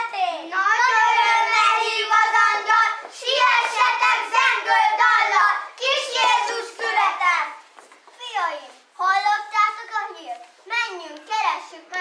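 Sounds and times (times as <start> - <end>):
children singing: 0.0 - 7.4.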